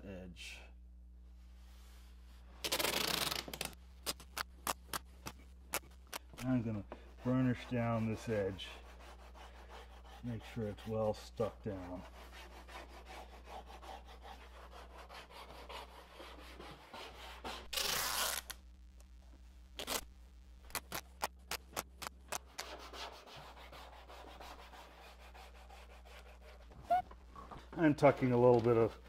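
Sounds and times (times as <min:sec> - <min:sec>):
squeegee rubbing along tape: 0:02.6 - 0:18.6, 0:20.7 - 0:27.1.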